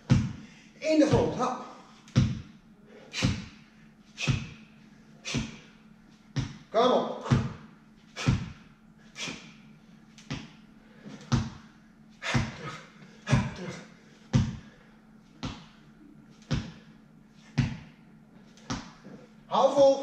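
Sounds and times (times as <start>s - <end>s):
foot thuds on rubber floor: 0.0s - 0.4s, 2.1s - 2.6s, 4.2s - 4.6s, 6.3s - 8.6s, 10.2s - 13.7s, 14.3s - 14.7s, 15.4s - 15.8s, 16.4s - 16.9s, 17.5s - 18.0s, 18.6s - 19.2s
sharp exhaled breath: 2.8s - 4.6s, 5.2s - 5.7s, 9.1s - 9.6s, 12.2s - 13.9s.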